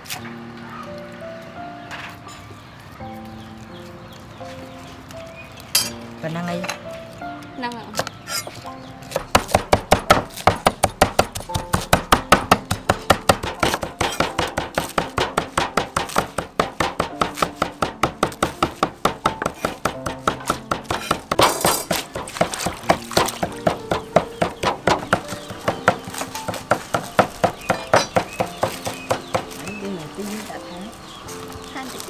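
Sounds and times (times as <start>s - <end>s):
cleaver chopping on wooden block: 9.1s - 29.8s.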